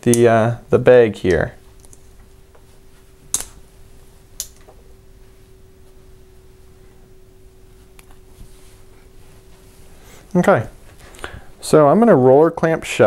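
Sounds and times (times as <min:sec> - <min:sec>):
faint steady hum: 0:00.0 - 0:13.0.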